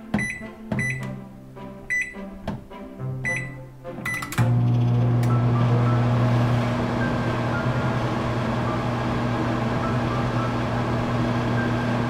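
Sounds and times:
microwave oven humming: 4.4 - 12.0.

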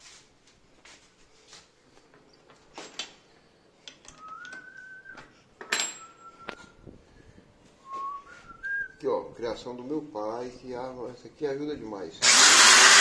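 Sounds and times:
person whistling long notes: 4.1 - 6.9, 7.8 - 9.0.

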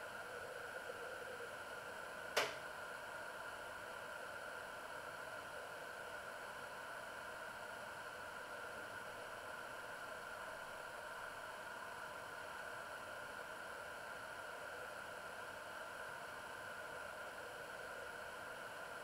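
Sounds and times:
sharp click: 2.4 - 2.6.

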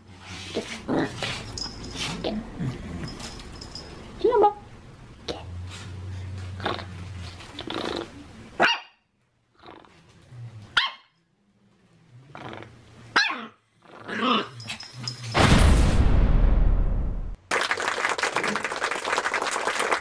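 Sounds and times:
dog growling: 0.5 - 1.5, 6.6 - 8.2, 9.6 - 10.0, 12.3 - 12.8, 13.4 - 14.8
small dog barking: 8.6 - 9.0, 10.8 - 11.1, 13.1 - 13.6
sudden loud burst of noise: 15.4 - 17.4.

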